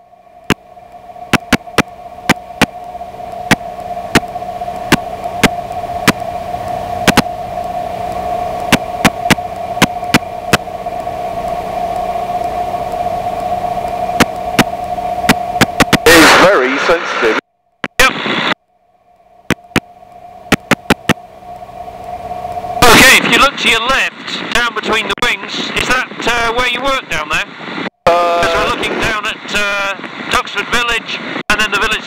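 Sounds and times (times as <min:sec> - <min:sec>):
constant whine: 0:00.0 - 0:32.0
sharp static clicks: 0:00.4 - 0:32.0
radio hiss: 0:15.3 - 0:18.6, 0:22.8 - 0:32.0.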